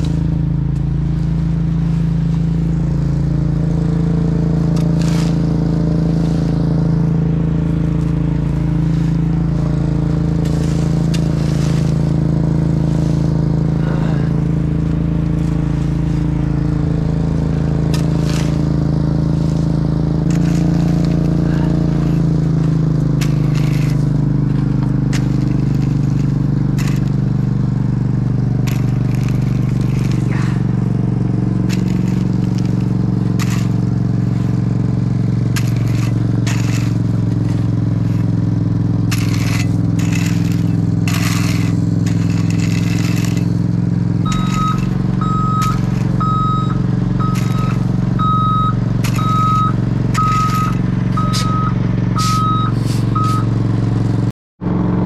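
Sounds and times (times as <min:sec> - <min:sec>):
heavy diesel engine running: 0:00.0 - 0:55.0
backup alarm beeping: 0:44.2 - 0:53.6.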